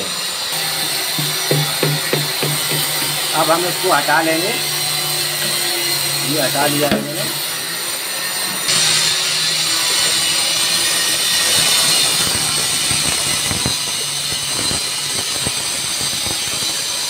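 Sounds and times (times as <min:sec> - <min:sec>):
steady loud hiss: 0:00.6 - 0:04.7
brush tapping and scraping: 0:00.9 - 0:07.5.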